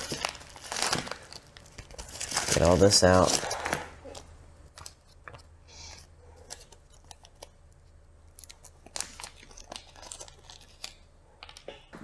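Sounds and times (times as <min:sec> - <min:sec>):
plastic bags crinkling: 0:00.0 - 0:05.4, 0:08.4 - 0:11.7.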